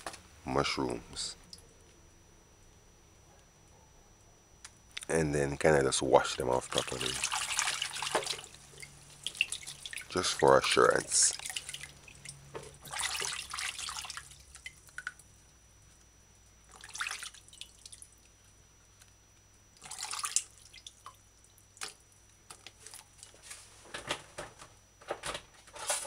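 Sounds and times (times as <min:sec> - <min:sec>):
water splashing in glass bowl: 0:06.7 - 0:15.3, 0:16.7 - 0:18.3, 0:19.8 - 0:21.2.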